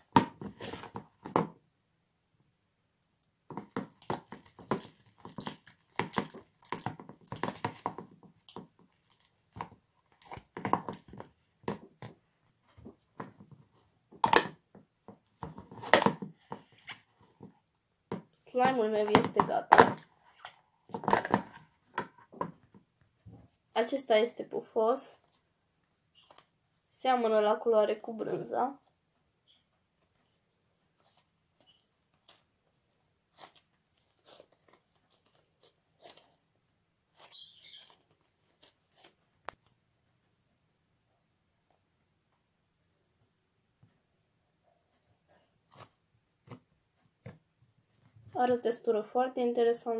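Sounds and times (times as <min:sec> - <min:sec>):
slime crackling and popping: 0:03.9 - 0:11.1.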